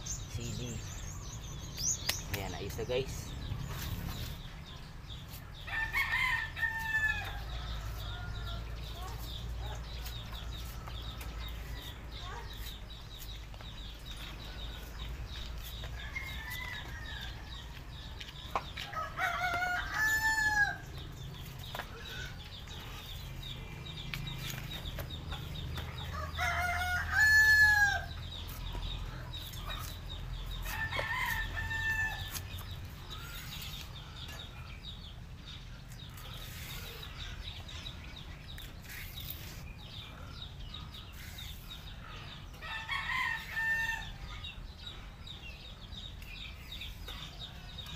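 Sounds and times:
roosters crowing: 5.6 - 8.9, 16.0 - 17.8, 18.8 - 21.3, 25.9 - 28.6, 30.4 - 33.8, 42.3 - 44.4.

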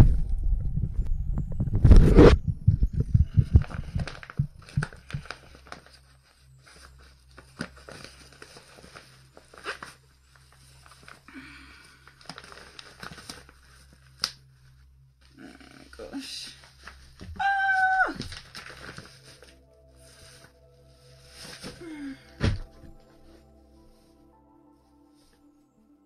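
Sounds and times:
plastic film crinkling: 3.3 - 14.8, 15.8 - 22.0.

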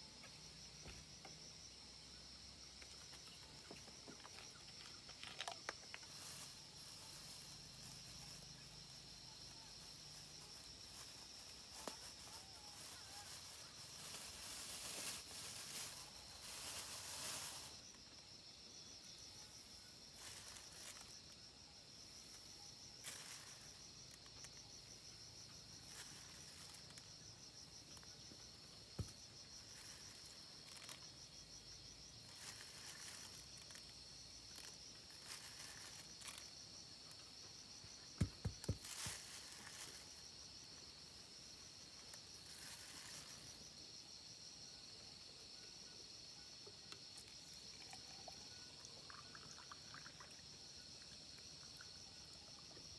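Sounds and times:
insects chirring: 0.0 - 52.9
plastic bag of grains rustling: 9.8 - 18.0, 23.0 - 24.6, 38.2 - 40.2, 42.4 - 43.6.

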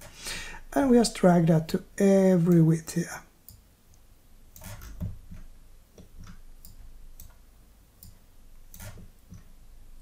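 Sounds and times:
computer mouse clicking: 3.4 - 7.4, 8.0 - 9.6.

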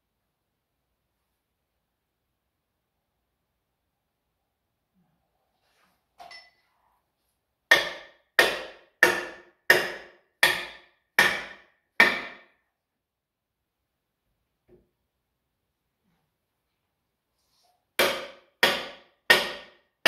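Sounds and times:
faint clink: 6.2 - 6.7.

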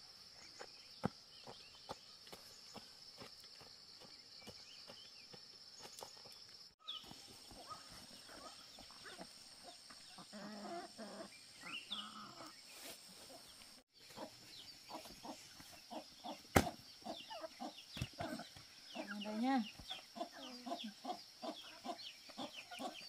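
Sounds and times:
chickens clucking: 7.4 - 12.6, 13.2 - 23.0.

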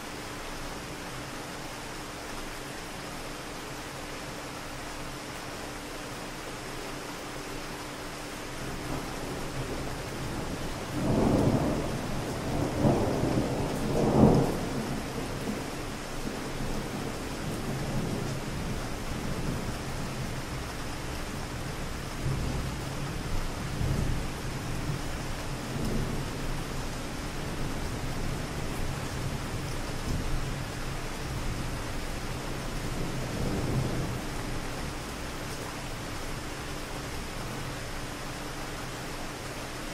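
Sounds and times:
rain falling: 0.0 - 39.9.

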